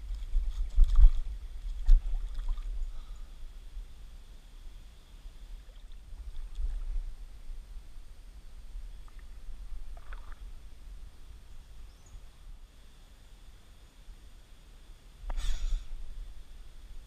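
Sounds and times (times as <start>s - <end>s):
water splashing and sloshing: 0.0s - 3.0s, 5.6s - 7.2s, 9.0s - 10.8s.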